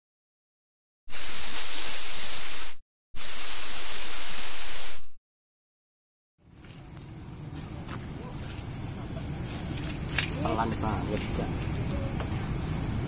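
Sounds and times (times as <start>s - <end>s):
hissing noise bursts: 1.1s - 5.2s.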